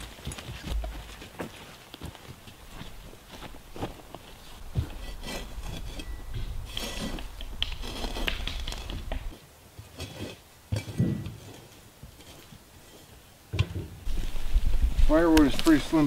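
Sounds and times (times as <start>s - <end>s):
camping gear rubbing and scraping: 2.4s - 13.4s, 14.0s - 16.0s.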